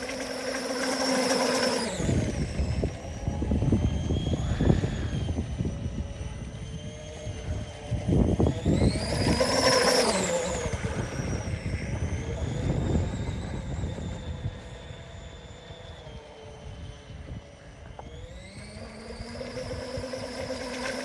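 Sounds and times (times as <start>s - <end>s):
model speedboat gear whine: 0.0s - 21.0s
wind buffeting microphone: 1.8s - 20.7s.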